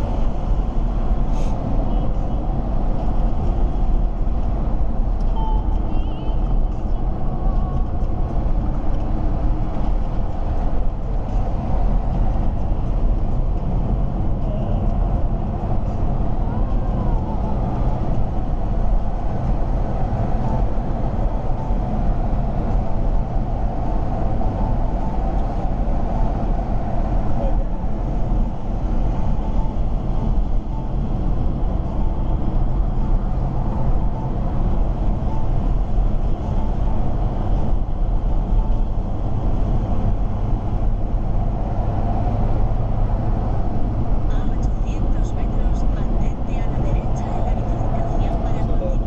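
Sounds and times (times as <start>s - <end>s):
car cabin road and engine noise: 0.0s - 49.0s.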